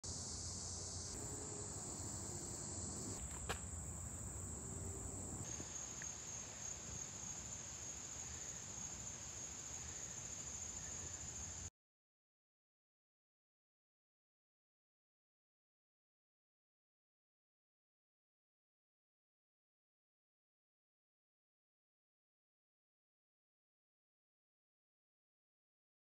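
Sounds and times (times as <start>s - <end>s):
high-pitched insect chorus: 0.1s - 11.7s.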